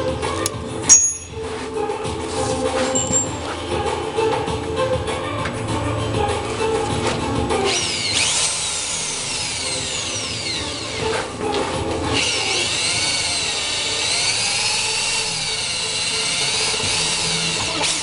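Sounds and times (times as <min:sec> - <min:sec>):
electric drill boring into steel: 0:07.6 - 0:18.0.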